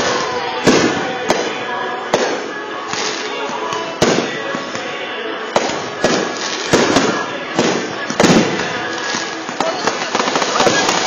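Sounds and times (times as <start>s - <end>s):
fireworks shells bursting: 5.6s - 11.0s
background crackle: 8.4s - 11.0s.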